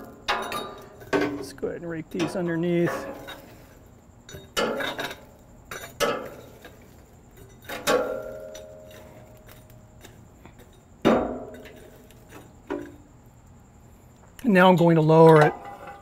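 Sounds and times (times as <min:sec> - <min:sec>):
rake dragging charcoal embers: 0:00.0 - 0:13.2
metal rake knocking on firebox: 0:02.1 - 0:03.4, 0:04.3 - 0:06.6.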